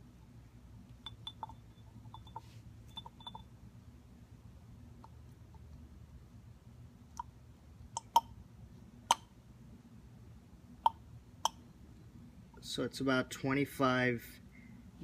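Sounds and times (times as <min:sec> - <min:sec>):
steady low hum: 0:00.0 - 0:15.0
syringe clicks and pops: 0:07.9 - 0:08.3.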